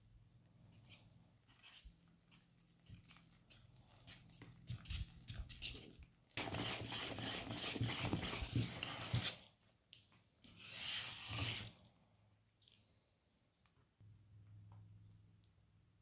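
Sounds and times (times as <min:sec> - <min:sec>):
whisk beating batter in bowl: 0:02.9 - 0:09.4.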